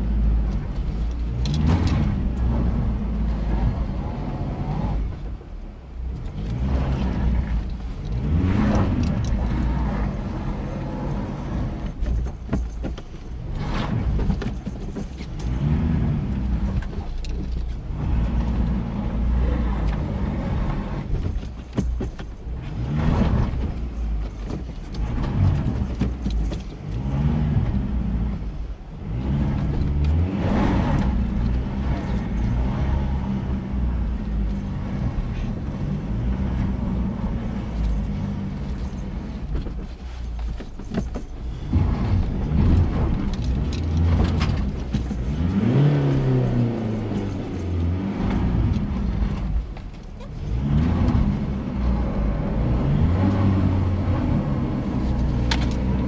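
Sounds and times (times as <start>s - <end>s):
truck engine revving: 0.0s - 5.2s, 6.3s - 12.0s, 15.4s - 17.1s, 25.0s - 40.2s, 41.4s - 56.0s.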